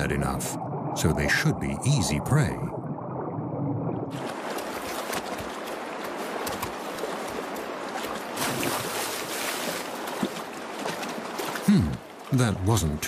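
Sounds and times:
splashes in water: 4.1 - 12.4
creek water rushing: 4.1 - 13.0.

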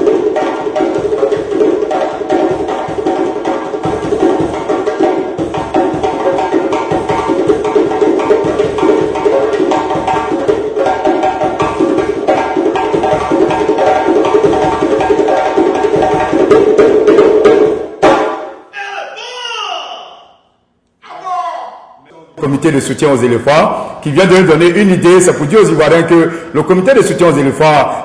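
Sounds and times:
hand drums with jingles: 0.0 - 18.4.

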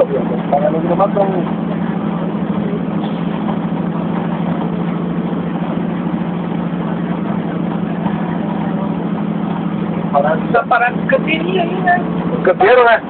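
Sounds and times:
road noise: 0.0 - 13.0
van engine droning: 0.0 - 13.0.

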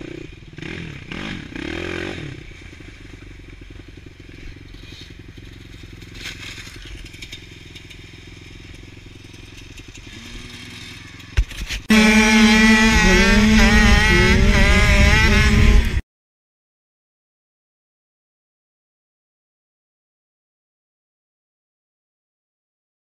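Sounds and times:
dirt bike engine revving: 0.0 - 16.0
loud motorcycle engines at high revs: 0.0 - 16.0
bike rolling through slush: 4.6 - 11.2.

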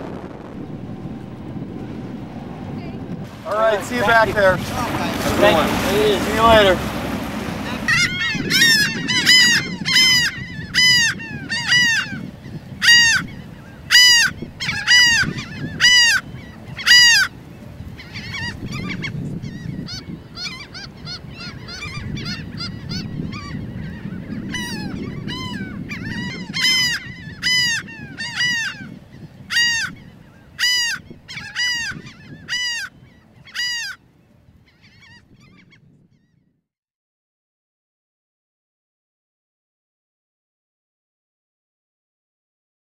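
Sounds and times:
low rumble: 0.0 - 11.5
gulls calling: 0.0 - 36.3.

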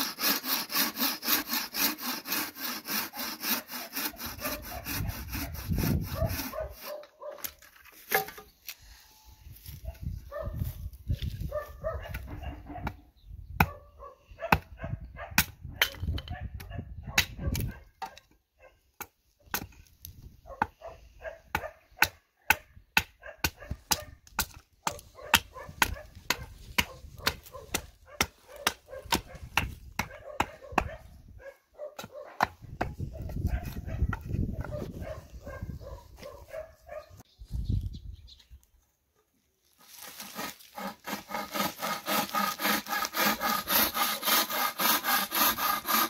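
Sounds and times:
axe chopping wooden board: 19.0 - 19.9, 21.5 - 31.0.

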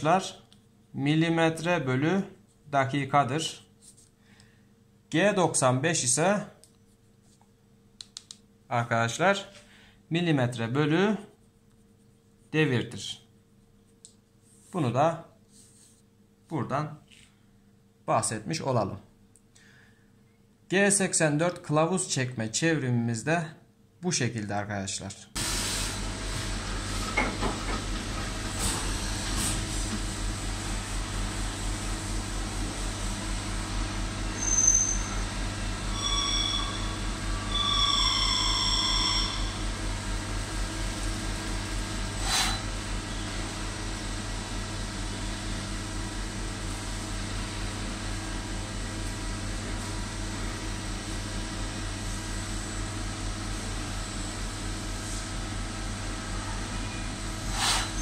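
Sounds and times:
machine hum: 25.4 - 58.0
short whining tones: 34.3 - 39.7.

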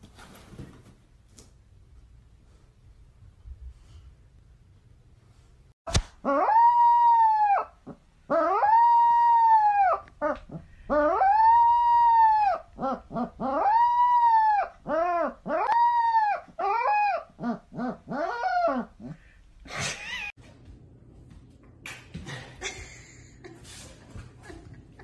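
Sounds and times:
sharp click: 5.9 - 6.2
puppy howling: 6.2 - 19.2.

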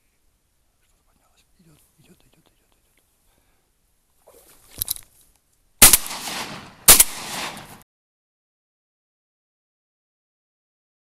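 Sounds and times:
shotgun shots: 5.8 - 7.8.

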